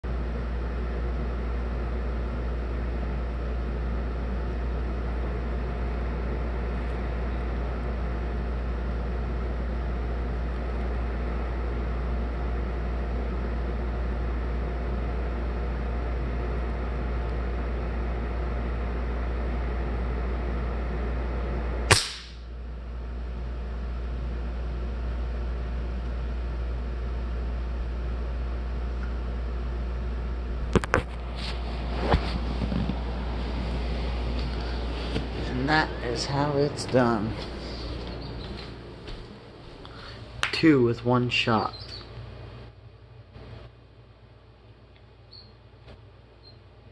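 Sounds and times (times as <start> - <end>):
low background hum: 0.0 - 46.9
air rifle shot: 21.9 - 22.5.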